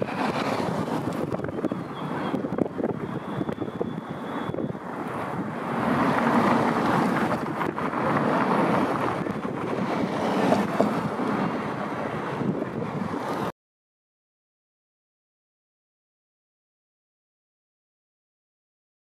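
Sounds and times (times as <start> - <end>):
wind on microphone: 0.0 - 13.5
outdoor street ambience: 0.0 - 13.6.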